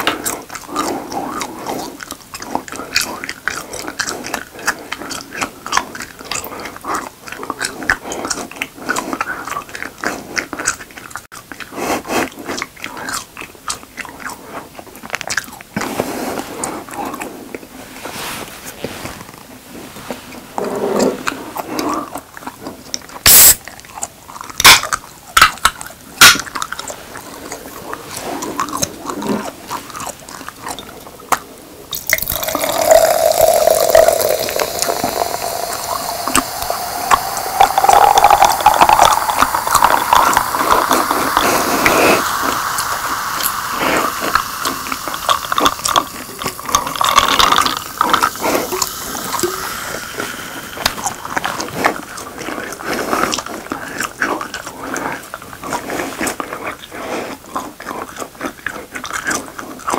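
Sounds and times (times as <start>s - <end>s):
cola pouring over ice fizzing: 31.9s - 51.8s.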